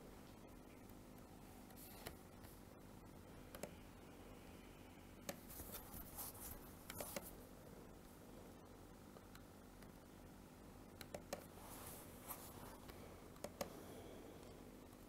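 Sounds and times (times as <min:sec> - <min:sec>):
room hiss: 0:00.0 - 0:15.0
computer mouse clicks: 0:03.5 - 0:03.8, 0:06.8 - 0:07.3, 0:11.0 - 0:11.5, 0:12.8 - 0:13.8.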